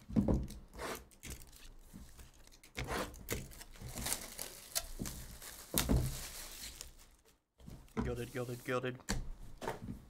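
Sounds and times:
plastic wrap crackling and rustling: 0:03.4 - 0:08.9.

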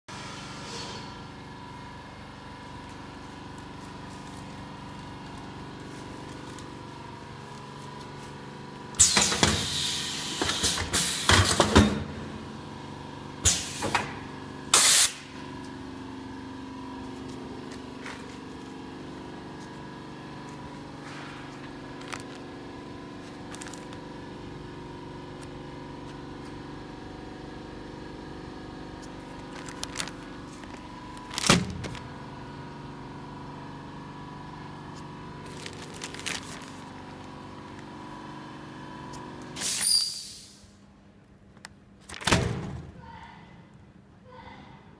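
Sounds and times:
compressed air hissing: 0:14.7 - 0:15.2, 0:39.6 - 0:40.7.

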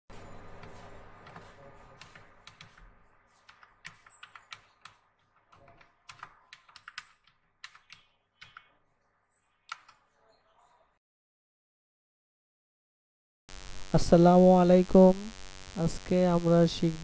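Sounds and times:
keyboard typing: 0:00.4 - 0:08.8, 0:09.6 - 0:10.1.

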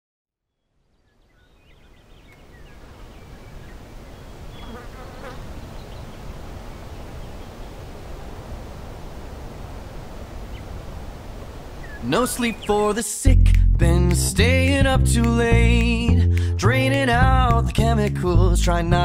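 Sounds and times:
faint bird chirps: 0:00.5 - 0:07.9, 0:11.8 - 0:12.8.

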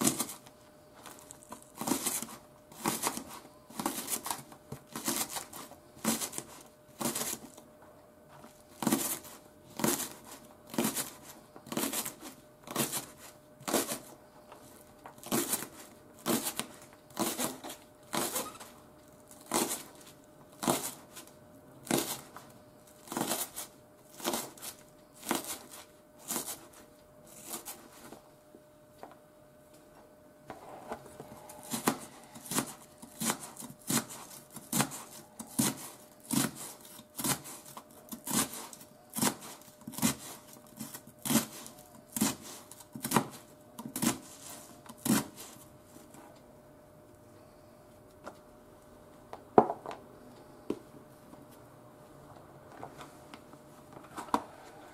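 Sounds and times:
faint steady hum: 0:00.0 - 0:54.9
knife chopping on wooden board: 0:31.6 - 0:37.6.

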